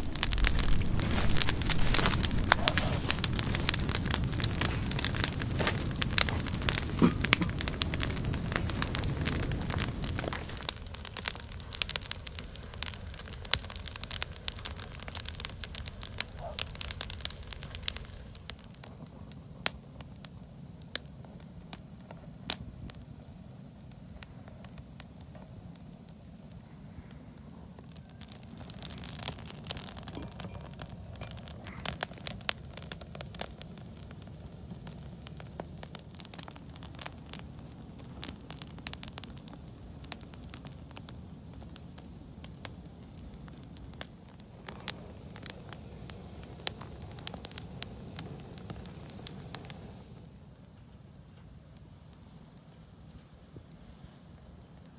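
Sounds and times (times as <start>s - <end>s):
wood fire crackling and popping: 0.0s - 54.9s.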